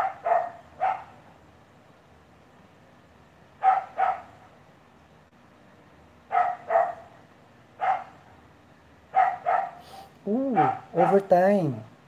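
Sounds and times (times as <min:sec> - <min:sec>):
dog barking: 0:00.0 - 0:01.2, 0:03.6 - 0:04.4, 0:06.3 - 0:07.2, 0:07.8 - 0:08.3, 0:09.1 - 0:11.3.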